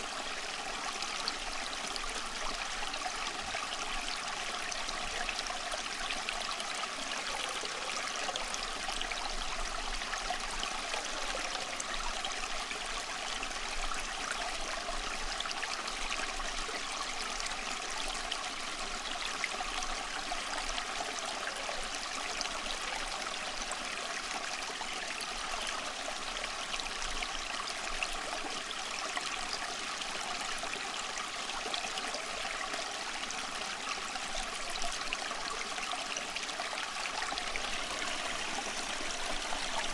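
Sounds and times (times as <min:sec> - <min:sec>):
running water rushing: 0:34.0 - 0:39.9.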